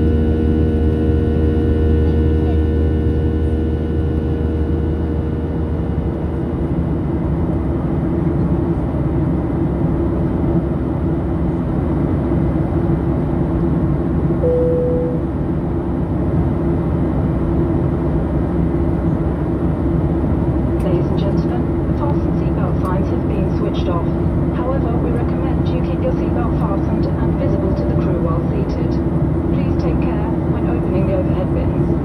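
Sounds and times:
jet engine and airflow rush: 0.0 - 32.0
short tone: 14.4 - 15.4.

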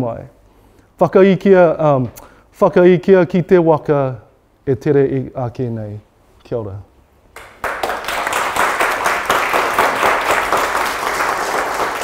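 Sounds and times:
audience applauding: 7.4 - 12.0.

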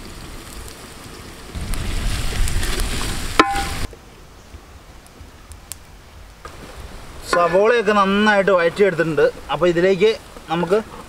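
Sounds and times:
onions sizzling in oil: 0.0 - 3.9.

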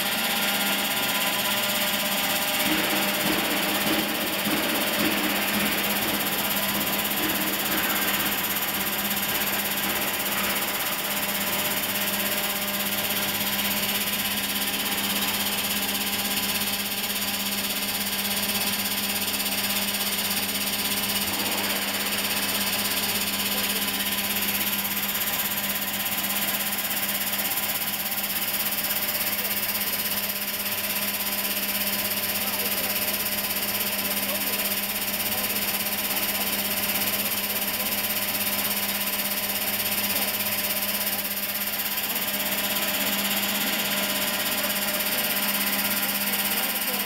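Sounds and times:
motor hum: 0.0 - 27.3.

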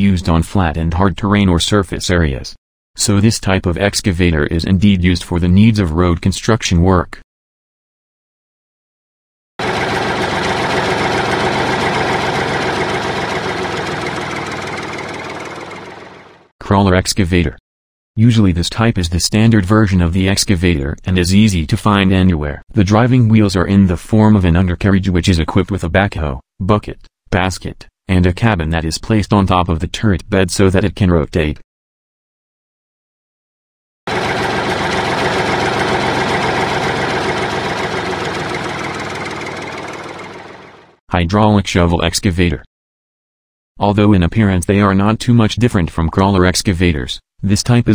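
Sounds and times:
excavator diesel engine running: 9.6 - 16.5, 34.1 - 41.0.

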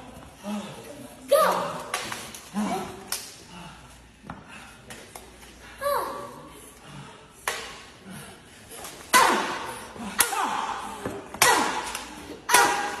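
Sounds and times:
child shouting: 5.8 - 6.4.

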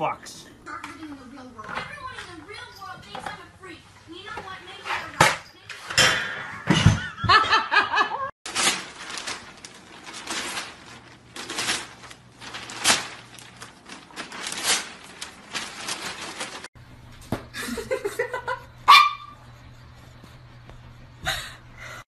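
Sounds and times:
newspaper crackling and tearing: 8.5 - 16.7.

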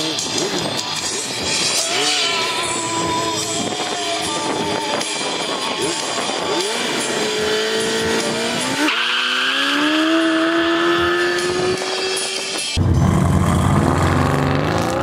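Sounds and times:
car engine revving: 6.0 - 15.0.

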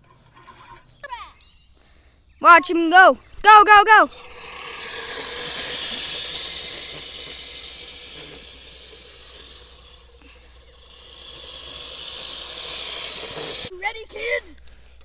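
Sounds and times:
push reel mower whirring: 0.0 - 1.0, 3.7 - 13.7.

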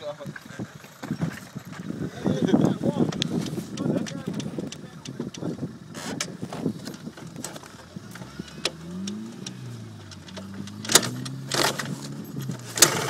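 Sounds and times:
two-stroke quad engine running: 1.1 - 13.0
knocks and clicks: 3.1 - 5.5, 6.2 - 13.0.

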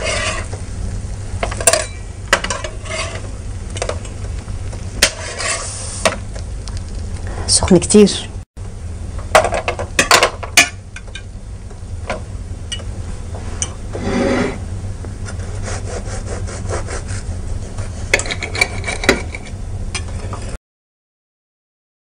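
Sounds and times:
knife sawing through crisp bread: 15.3 - 18.1.

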